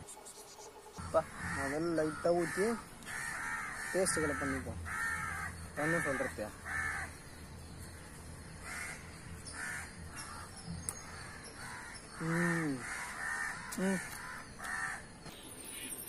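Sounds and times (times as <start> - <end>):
crows cawing: 1.0 - 15.3.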